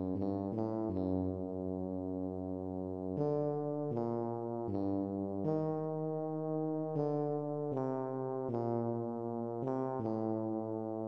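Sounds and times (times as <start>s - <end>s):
tuba playing slow melody: 0.0s - 11.0s.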